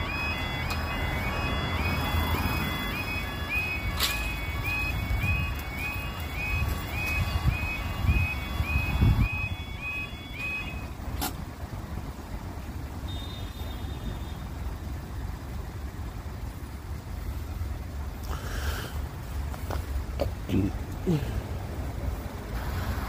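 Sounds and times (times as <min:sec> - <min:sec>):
crossing alarm warbling: 0:00.0 - 0:11.8.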